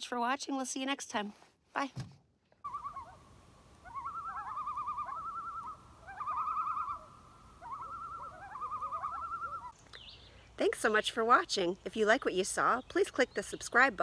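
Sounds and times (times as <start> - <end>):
bird rapid wavering trill: 2.7 - 9.8.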